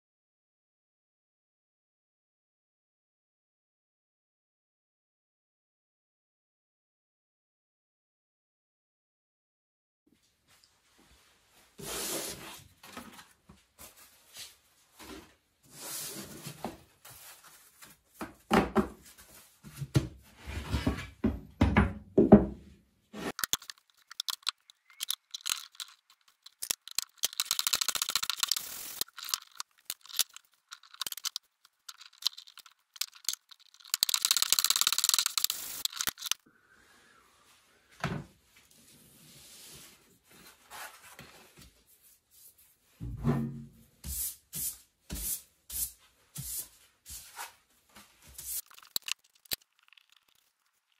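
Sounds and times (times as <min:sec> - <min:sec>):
boards knocked on a workbench: 0:21.2 - 0:22.6.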